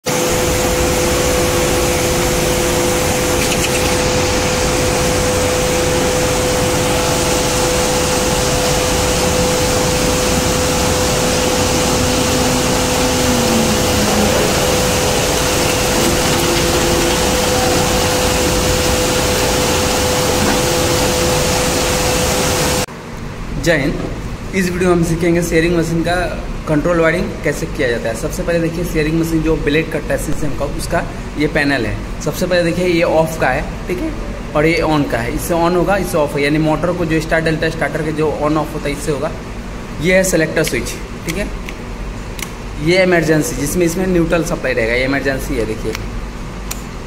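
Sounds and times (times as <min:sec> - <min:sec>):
industrial rushing noise: 0:00.1 - 0:22.9
constant droning hum: 0:00.1 - 0:47.0.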